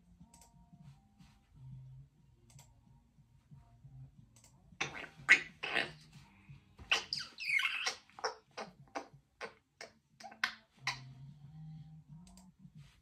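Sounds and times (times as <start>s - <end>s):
parrot whistled chatter: 4.8s - 6.0s, 6.9s - 11.1s
parrot clicks and chirps: 6.9s - 11.1s.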